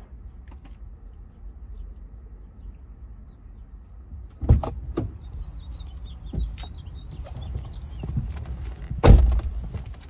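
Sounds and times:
knocks and thumps in car: 6.2 - 10.0.

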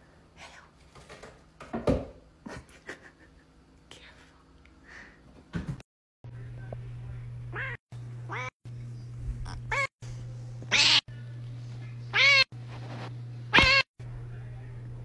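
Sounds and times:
steady low hum: 6.3 - 15.0
cat meowing: 7.5 - 8.5, 9.4 - 9.9, 10.7 - 11.0, 12.1 - 12.5, 13.5 - 13.8.

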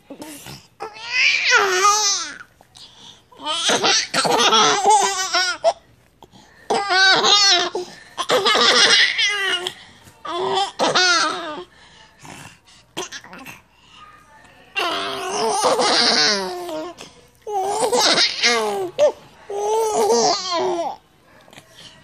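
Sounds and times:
baby giggling: 3.6 - 5.8.

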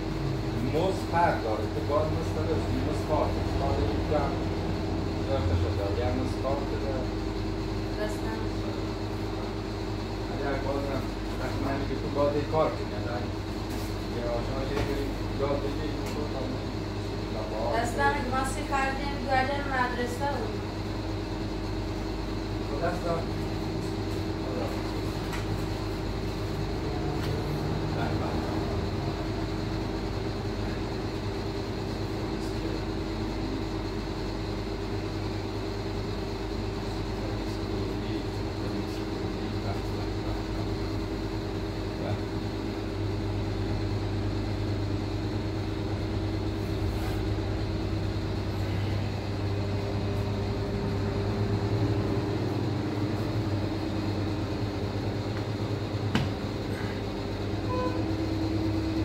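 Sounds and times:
low mechanical hum: 0.0 - 59.0.

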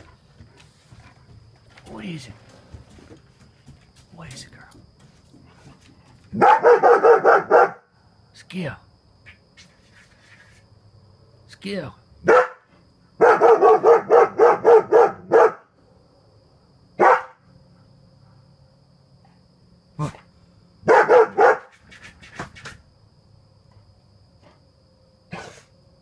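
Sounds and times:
dog barking: 6.3 - 7.9, 12.2 - 15.7, 17.0 - 17.4, 20.8 - 21.8.

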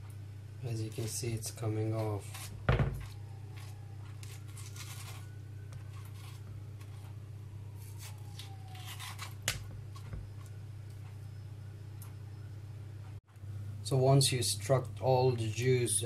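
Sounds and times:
metal spoon scraping gel: 0.8 - 7.0, 7.8 - 9.5.

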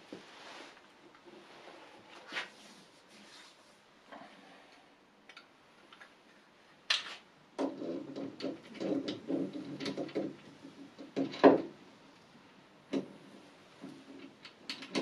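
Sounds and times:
metal-on-metal knocks and clatter: 7.6 - 11.7.

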